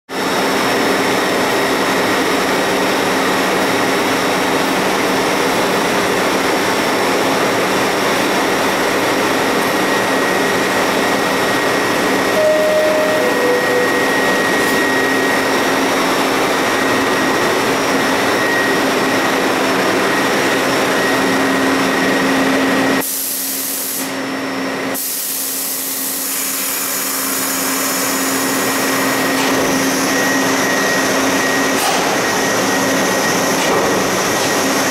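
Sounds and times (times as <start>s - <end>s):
subway train humming: 0.1s - 34.9s
two-note door chime: 12.4s - 14.8s.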